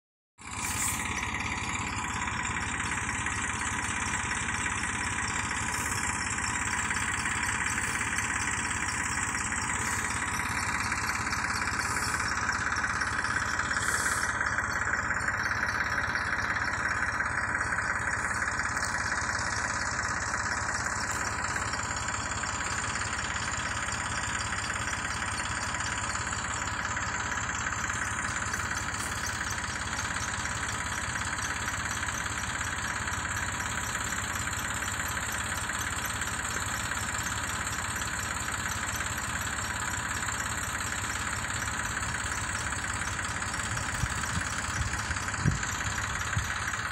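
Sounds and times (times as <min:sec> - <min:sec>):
tractor engine running: 0:00.4 - 0:46.9.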